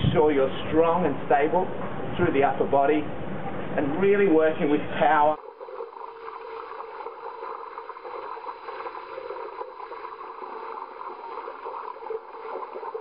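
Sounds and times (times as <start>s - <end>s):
pool water sloshing and splashing: 5.2s - 13.0s.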